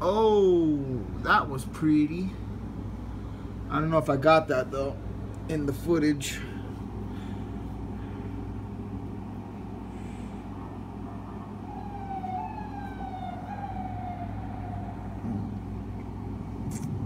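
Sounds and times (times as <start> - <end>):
steady low hum: 0.0 - 17.0
emergency vehicle siren wailing: 10.6 - 15.9.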